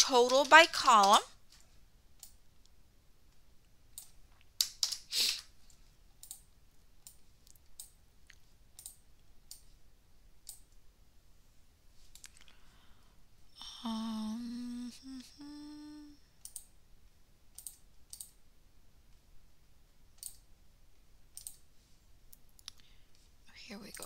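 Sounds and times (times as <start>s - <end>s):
person humming: 13.6s - 16.2s
mouse clicks: 20.2s - 20.4s, 21.3s - 21.6s.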